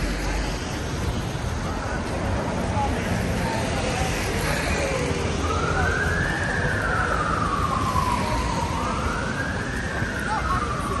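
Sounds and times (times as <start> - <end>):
city street noise: 0.0 - 11.0
emergency siren wailing: 4.8 - 11.0.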